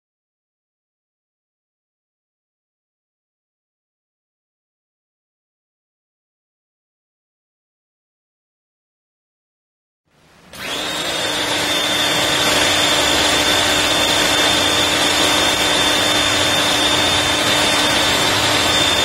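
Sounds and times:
pressure washer running: 10.5 - 19.0.

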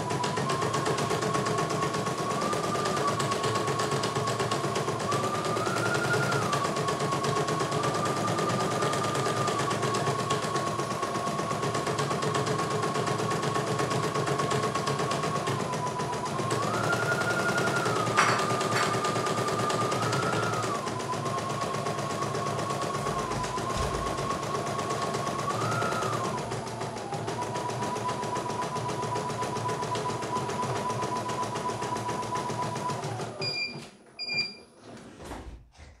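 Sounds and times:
motor whine: 20.1 - 24.7.

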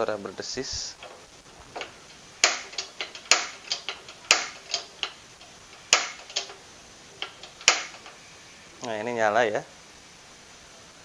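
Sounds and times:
gas stove ignition clicks: 1.8 - 6.6, 7.2 - 8.2.

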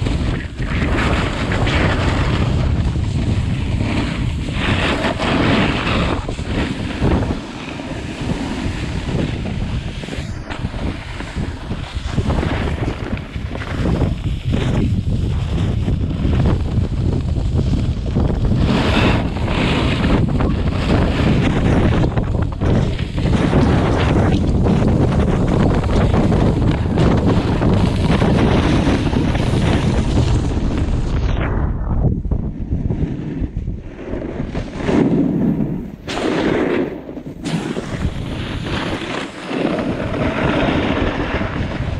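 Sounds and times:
skis scraping over snow: 0.0 - 31.7, 32.8 - 41.9
wind buffeting microphone: 0.0 - 41.9
skis hissing on snow: 0.8 - 15.6.

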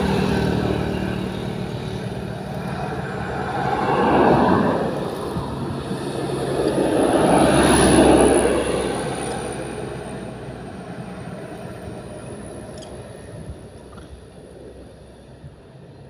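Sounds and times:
vehicle passing by: 0.0 - 11.9.

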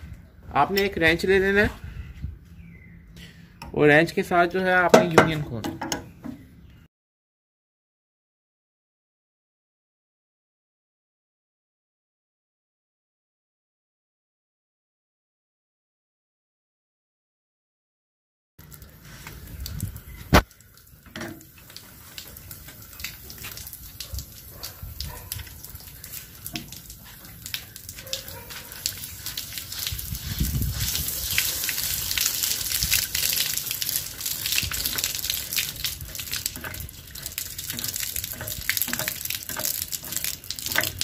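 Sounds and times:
water splashing and gushing from pipe: 18.6 - 41.0.

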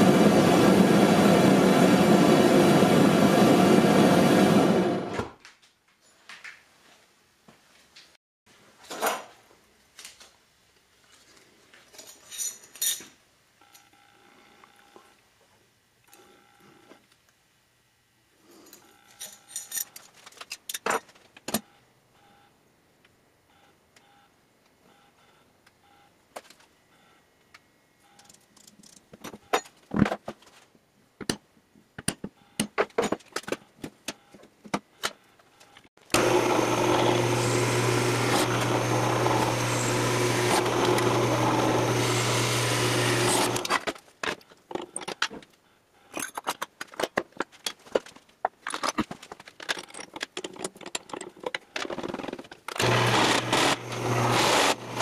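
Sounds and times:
power tool motor running: 36.1 - 43.8, 52.8 - 55.0.

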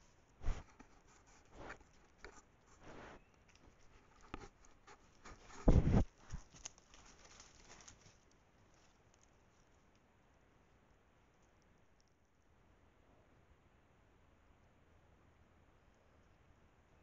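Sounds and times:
rustling brush: 0.0 - 10.0
animal footfalls: 5.4 - 6.7
heavy thud against camera: 5.6 - 6.1.

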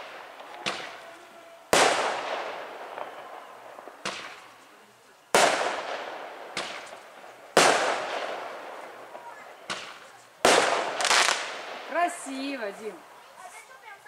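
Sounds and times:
sharp firework pops: 0.0 - 1.0, 1.7 - 4.7, 5.3 - 11.9
firework bangs with echoing rumble: 0.0 - 1.1, 1.7 - 4.6, 5.3 - 12.4.

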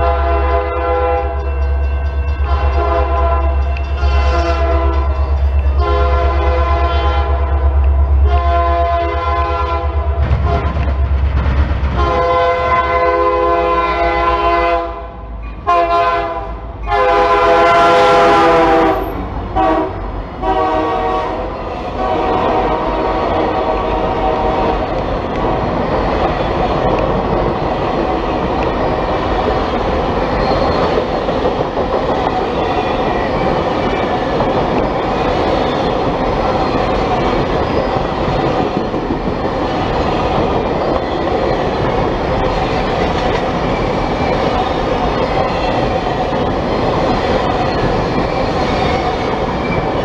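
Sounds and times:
locomotive air horn blasts: 0.0 - 1.5, 2.4 - 7.6, 8.2 - 10.8, 12.0 - 25.0
locomotives passing rush: 0.0 - 50.0
railcars clattering on rails: 0.0 - 50.0.

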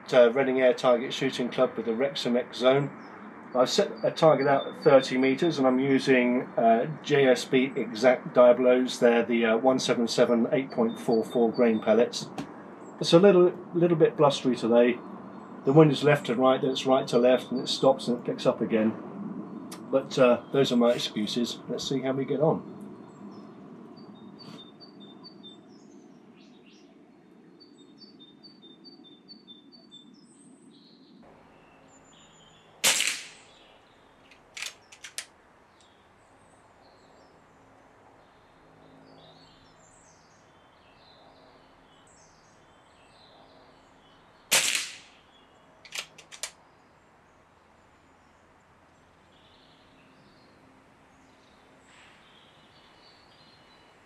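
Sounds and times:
air rifle shot crack: 32.8 - 33.6, 44.5 - 45.2
rifle lever clicks: 34.4 - 35.3, 45.9 - 46.6.

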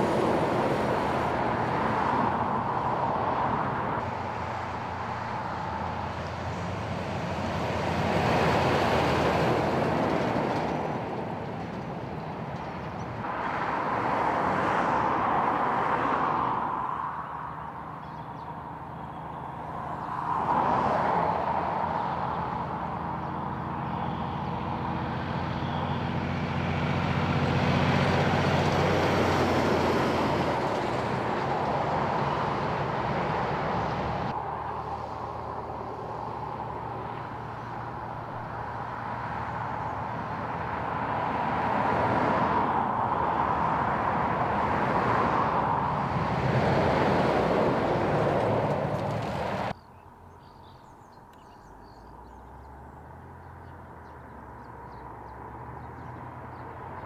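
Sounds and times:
tyres hissing on the road: 0.0 - 16.3, 24.0 - 49.8
cars going by: 0.0 - 57.0.

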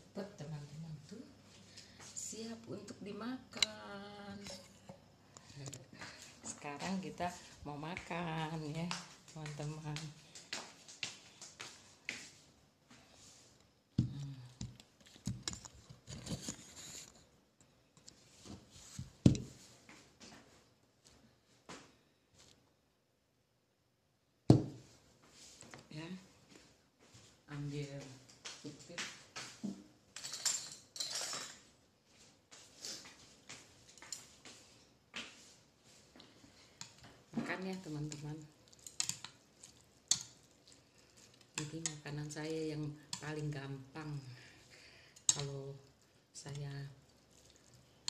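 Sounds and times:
utensils clinking against a plate: 30.2 - 31.6.

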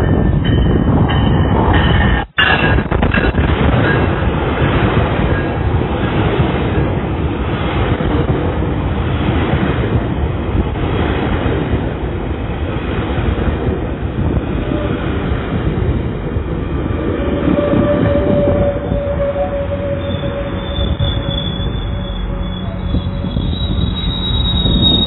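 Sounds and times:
train wheels rumbling on rails: 0.0 - 25.0
faint wheel squeal: 17.2 - 25.0.

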